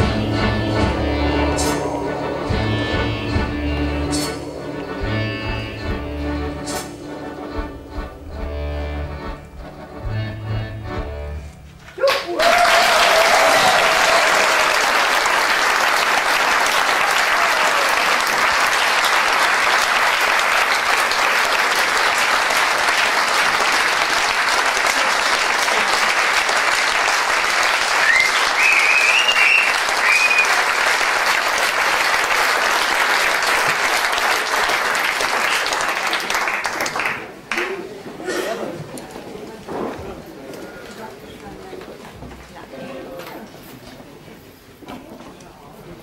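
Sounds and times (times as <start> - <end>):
audience applauding: 1.4 - 5.3, 11.9 - 38.0.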